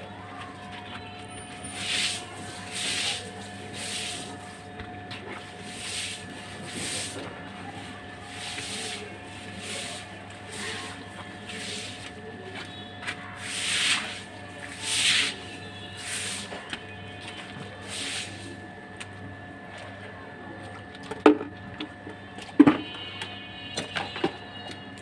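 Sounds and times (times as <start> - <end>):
broom sweeping wet floor: 1.7 - 18.6.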